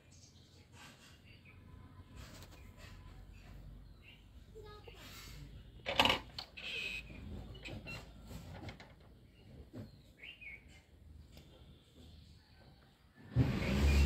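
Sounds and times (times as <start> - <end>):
bird chirp: 0.0 - 4.4, 9.3 - 12.9
faint scuffles and rustles: 2.0 - 3.7.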